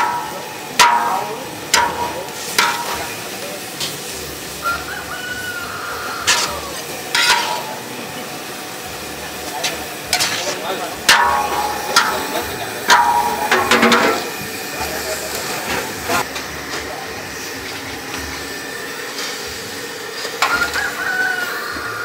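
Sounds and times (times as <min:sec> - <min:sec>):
utensil knocking and scraping pan: 0:00.0 - 0:03.2, 0:06.2 - 0:07.8, 0:09.6 - 0:14.4
food sizzling in a metal pan: 0:00.0 - 0:22.0.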